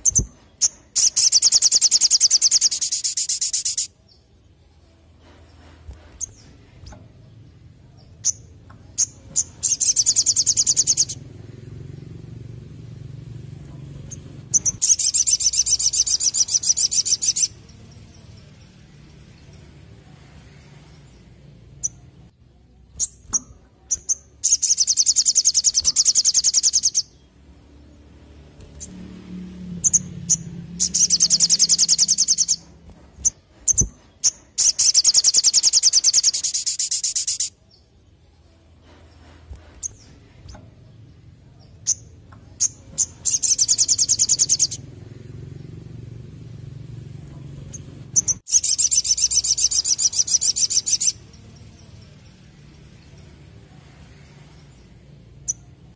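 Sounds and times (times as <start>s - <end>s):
sunbird singing chips and trill: 0.0s - 4.7s, 6.2s - 11.2s, 14.0s - 19.8s, 22.8s - 27.4s, 29.7s - 38.4s, 39.8s - 44.9s, 47.7s - 53.6s, 54.4s - 55.9s.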